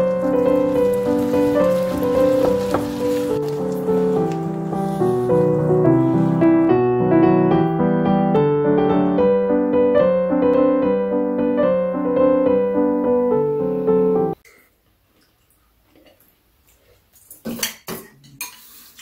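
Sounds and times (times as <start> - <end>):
faint frying sizzle: 0.0 - 6.1
soft solo piano waltz: 0.0 - 14.4.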